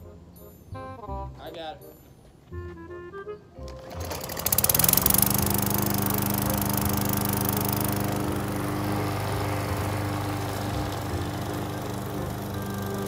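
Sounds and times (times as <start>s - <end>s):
lawn mower engine running: 3.6s - 13.0s.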